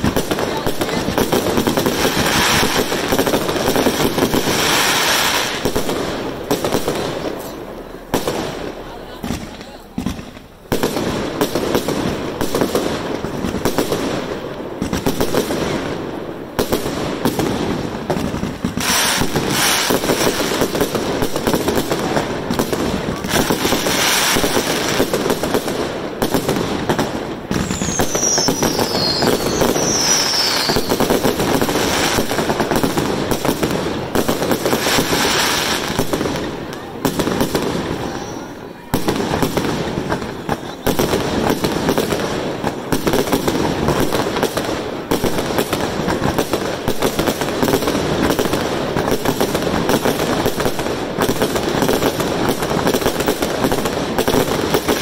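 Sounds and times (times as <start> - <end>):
fireworks crackling and popping: 0.0 - 55.0
falling firework whistles: 1.7 - 5.9, 27.5 - 33.0, 37.4 - 39.6.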